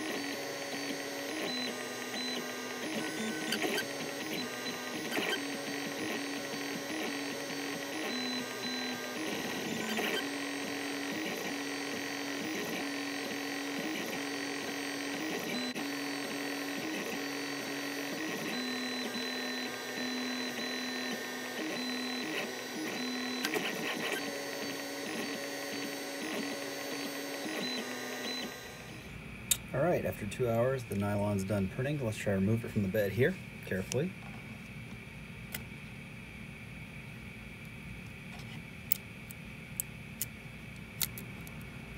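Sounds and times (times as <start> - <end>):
stepper motors whining: 0.0 - 29.1
mechanical whir: 0.0 - 29.7.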